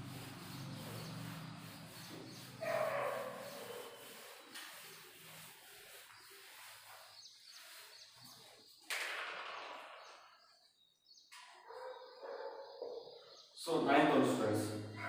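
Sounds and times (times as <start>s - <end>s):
duster wiping whiteboard: 0.0s - 8.7s.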